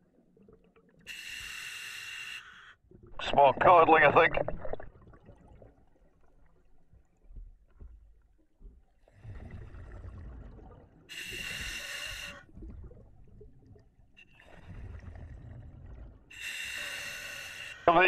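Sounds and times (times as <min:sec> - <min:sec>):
regulator hissing inhale: 0:01.1 - 0:02.6, 0:11.1 - 0:12.4, 0:16.3 - 0:17.8
exhaled bubbles rushing: 0:03.0 - 0:06.6, 0:09.1 - 0:11.1.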